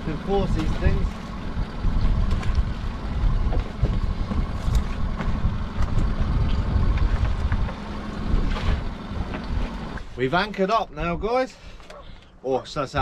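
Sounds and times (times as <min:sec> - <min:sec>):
outboard engine idling: 0:00.0 - 0:12.8
wind rumbling on microphone: 0:00.3 - 0:10.1.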